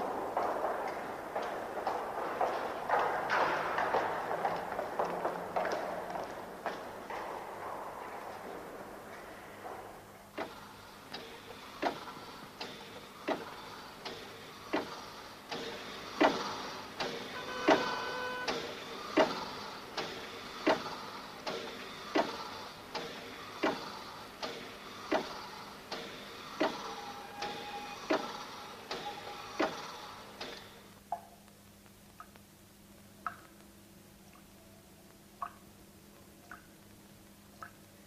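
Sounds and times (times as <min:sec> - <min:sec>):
short steady tones: 0:17.3 - 0:18.7.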